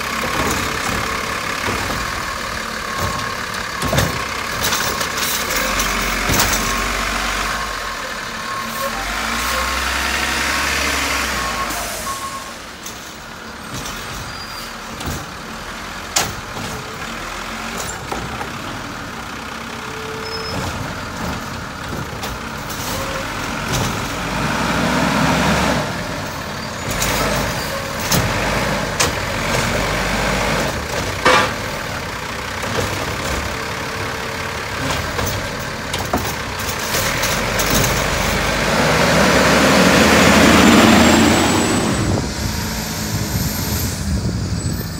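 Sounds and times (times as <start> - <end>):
diesel truck engine running: 0.0 - 44.9
metallic knocks and clanks: 0.1 - 7.0, 12.7 - 18.9, 20.4 - 24.3, 30.6 - 33.8, 34.7 - 38.6.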